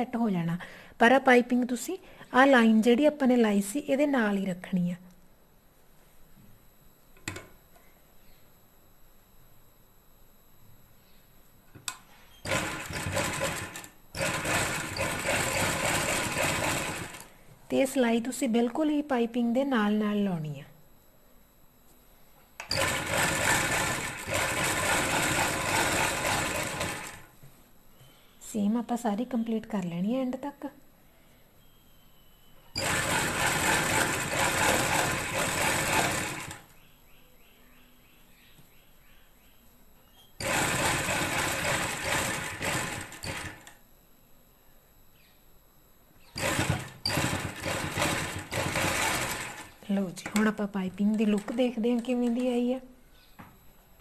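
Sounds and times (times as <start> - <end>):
sewing machine running: 12.4 - 17.3, 22.7 - 27.3, 32.8 - 36.7, 40.4 - 43.8, 46.4 - 49.8.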